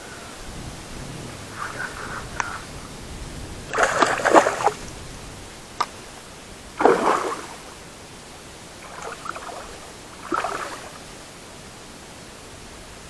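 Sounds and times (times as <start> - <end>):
fish thrashing and splashing: 3.7 - 4.9, 6.8 - 7.7, 8.8 - 11.0.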